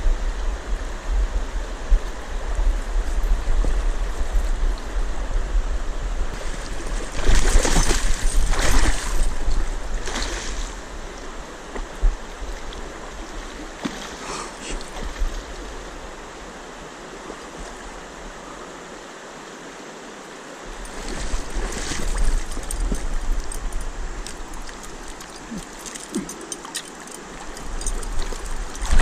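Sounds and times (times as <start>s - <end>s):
river current rushing: 4.8s - 29.0s
fish thrashing and splashing: 6.4s - 9.3s, 24.3s - 29.0s.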